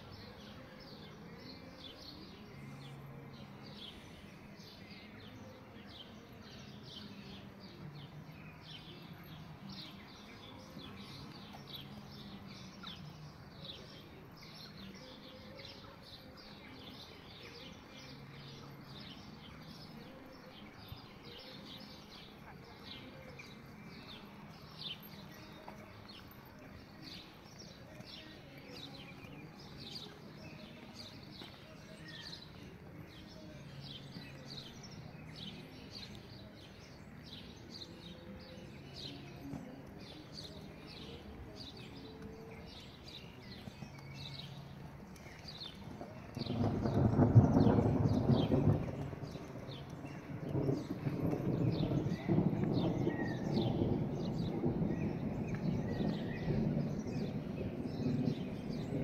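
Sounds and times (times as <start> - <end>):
birds chirping and twittering: 0.0 - 59.0
distant voices murmuring: 44.6 - 59.0.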